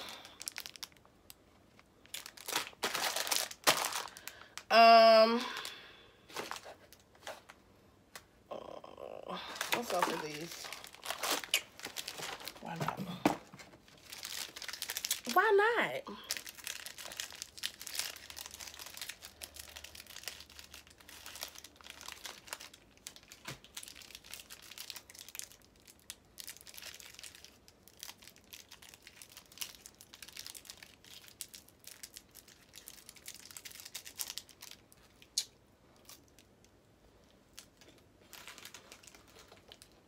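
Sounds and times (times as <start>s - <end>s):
plastic wrapper crinkling: 0.0s - 8.3s, 9.4s - 40.0s.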